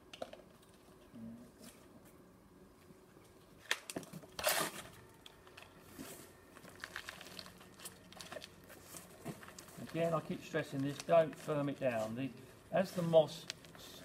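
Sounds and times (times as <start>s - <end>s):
moss rustling and crackling: 6.0s - 13.9s.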